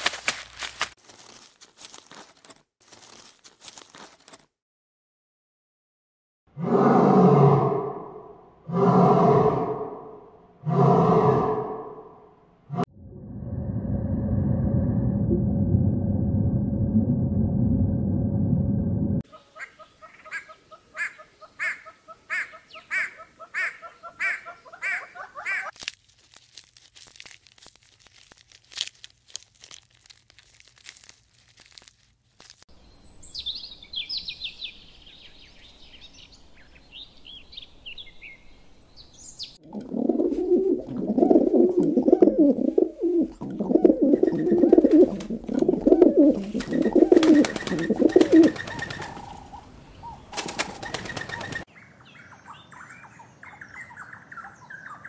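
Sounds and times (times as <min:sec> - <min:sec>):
low pulsing cooing: 0:39.6 - 0:48.6.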